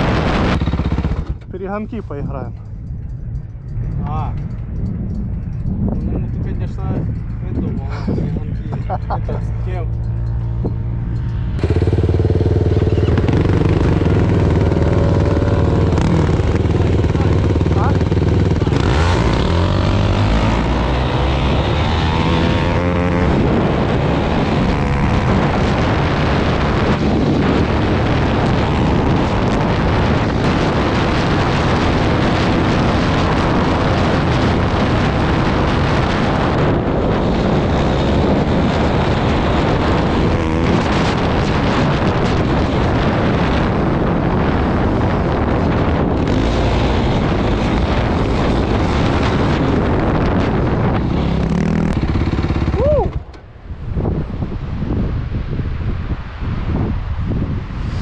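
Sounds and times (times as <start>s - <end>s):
quad engine running hard: 0.0s - 1.7s, 11.6s - 53.4s
wind rush on microphone: 0.0s - 58.0s.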